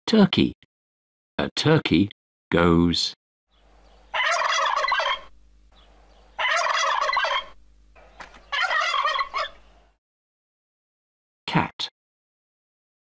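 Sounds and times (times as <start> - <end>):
turkey gobbling: 3.7 - 10.0.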